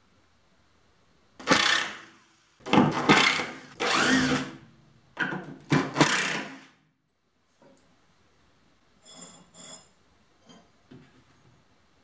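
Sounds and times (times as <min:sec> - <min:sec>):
power tool bursts: 0:02.9 - 0:04.6, 0:05.9 - 0:06.7.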